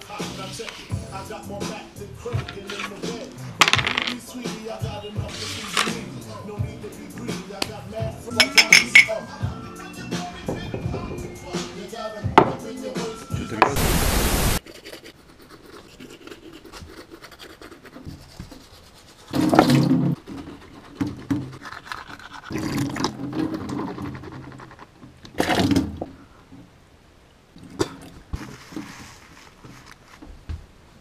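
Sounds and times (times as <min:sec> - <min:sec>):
sharp hiss: 0:13.8 - 0:14.6.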